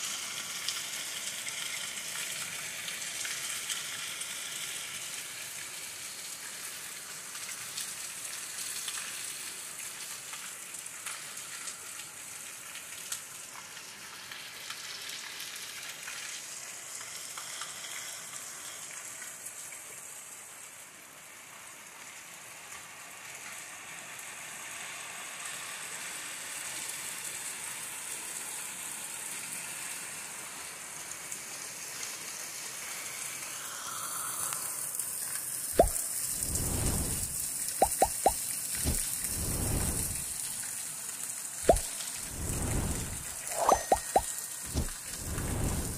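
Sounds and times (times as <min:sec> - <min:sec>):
rain falling steadily: 0:00.0 - 0:45.9
raindrop ticks: 0:37.0 - 0:39.1.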